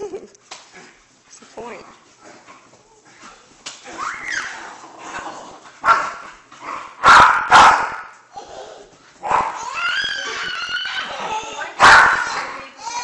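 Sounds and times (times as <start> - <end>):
large dog barking: 7.0 - 8.1, 11.8 - 12.5.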